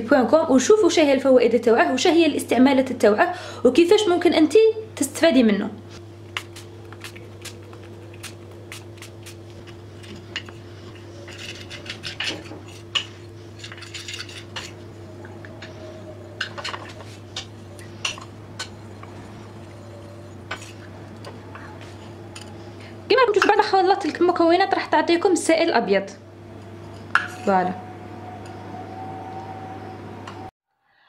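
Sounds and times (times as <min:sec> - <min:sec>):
steady low hum: 0:00.0 - 0:30.5
spoon scraping and clinking plate: 0:09.6 - 0:14.9, 0:26.8 - 0:27.6.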